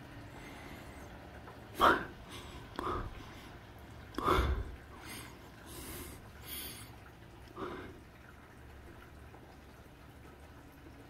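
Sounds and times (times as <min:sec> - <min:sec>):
rain hiss through window: 0:00.0 - 0:11.0.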